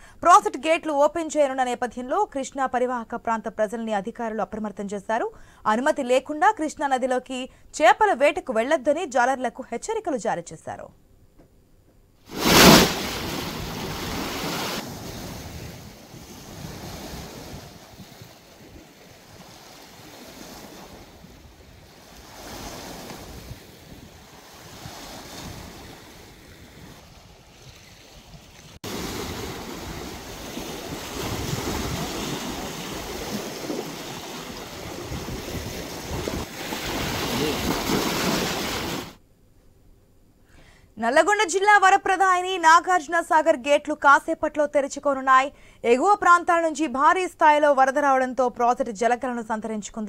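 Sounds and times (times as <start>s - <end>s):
wind buffeting microphone: 13.0s - 38.9s.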